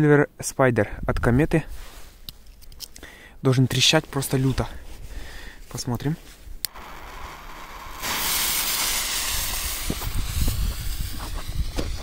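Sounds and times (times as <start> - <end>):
fountain firework hissing: 6.7 - 12.0
low pops: 6.7 - 12.0.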